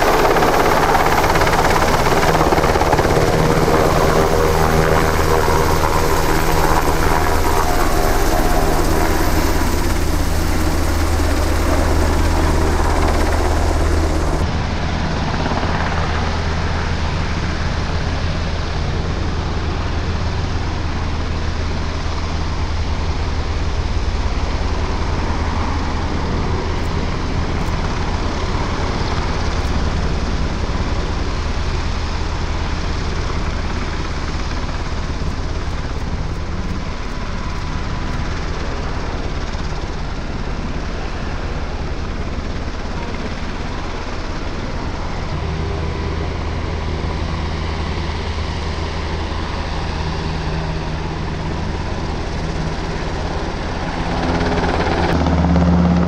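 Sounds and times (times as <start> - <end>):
helicopter drone and rotor beat: 0.0 - 56.0.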